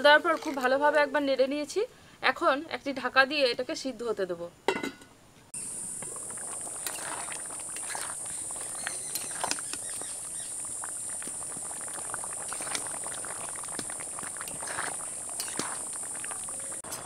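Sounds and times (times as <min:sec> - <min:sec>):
insects chirping: 0:05.6 - 0:17.0
pot bubbling and clicking: 0:05.6 - 0:17.0.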